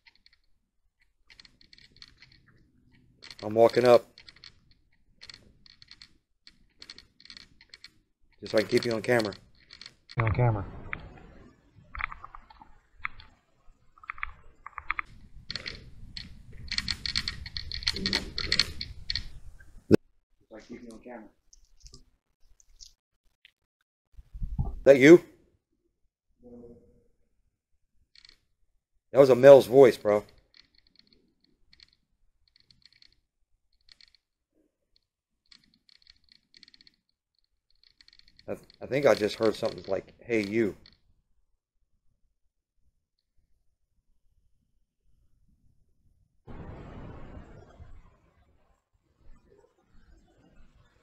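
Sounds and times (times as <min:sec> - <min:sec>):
faint scattered clicking: 0:00.0 - 0:10.2, 0:10.8 - 0:20.0, 0:21.5 - 0:23.6, 0:28.1 - 0:28.5, 0:29.2 - 0:34.3, 0:34.9 - 0:41.1.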